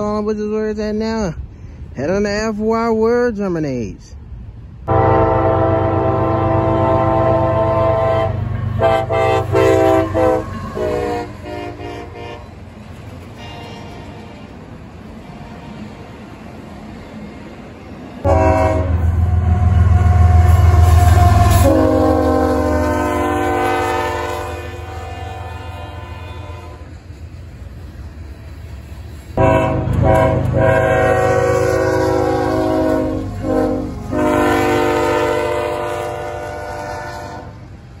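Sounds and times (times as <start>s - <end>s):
train rumbling: 0.0s - 38.0s
locomotive air horn chord: 4.9s - 12.6s, 18.2s - 26.9s, 29.4s - 37.6s.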